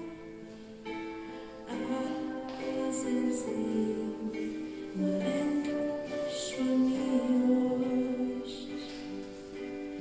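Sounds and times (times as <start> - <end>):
instrumental accompaniment: 0.0 - 10.0
woman singing into microphone: 1.6 - 9.3.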